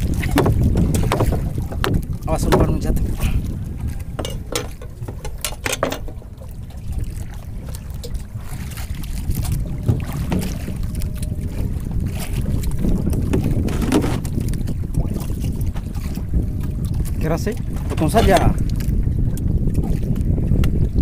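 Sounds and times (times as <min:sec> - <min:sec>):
wind rumbling on microphone: 0:00.0 - 0:21.0.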